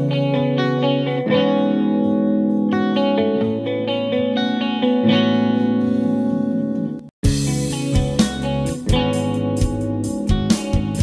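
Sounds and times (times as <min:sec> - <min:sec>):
electric guitar chords: 0:00.0 - 0:11.0.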